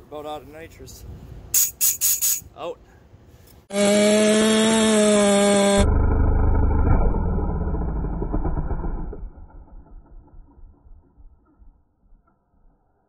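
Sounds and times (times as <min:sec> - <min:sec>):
chainsaw screaming at full throttle: 0:03.7 - 0:09.2
muffled low rumble: 0:05.9 - 0:12.8.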